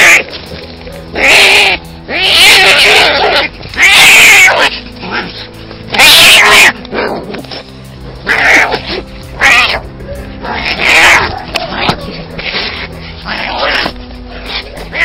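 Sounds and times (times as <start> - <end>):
background music with held notes: 0.0 - 15.0
cats fighting with short cries: 1.2 - 5.2, 8.2 - 9.8.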